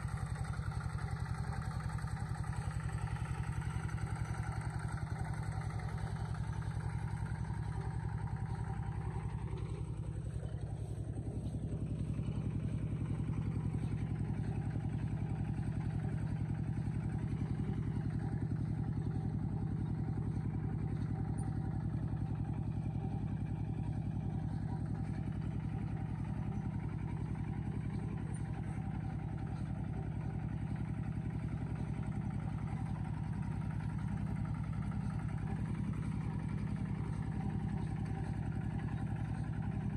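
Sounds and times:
vehicle engine droning: 0.0s - 39.9s.

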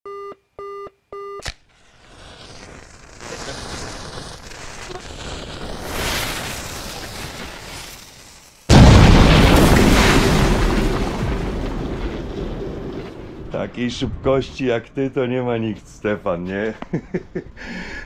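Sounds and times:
loud boom: 8.7s - 15.0s.

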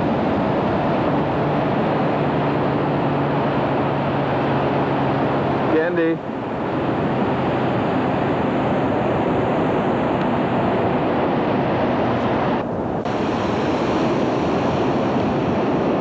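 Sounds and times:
wind buffeting microphone: 0.0s - 16.0s
ocean surf: 10.3s - 16.0s.

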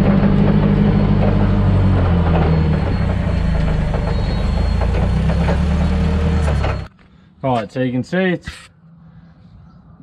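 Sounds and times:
forklift engine droning: 0.0s - 7.0s.

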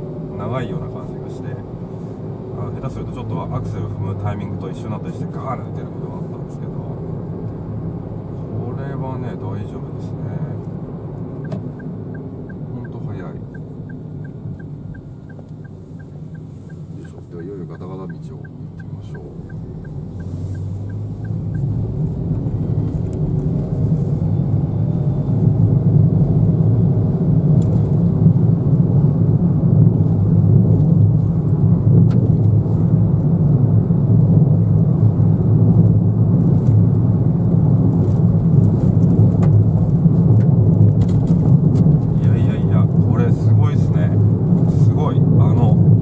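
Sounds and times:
car engine accelerating: 0.0s - 46.0s
road rumble: 0.0s - 46.0s
light regular ticking: 11.4s - 21.8s.

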